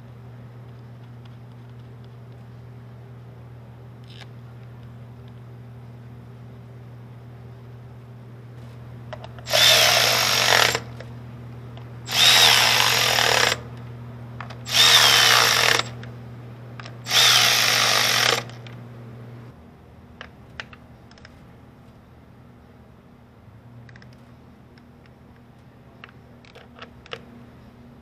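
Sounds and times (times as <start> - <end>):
cordless ratchet whining: 9.4 - 10.9, 12.1 - 13.6, 14.6 - 16.0, 17.1 - 18.7.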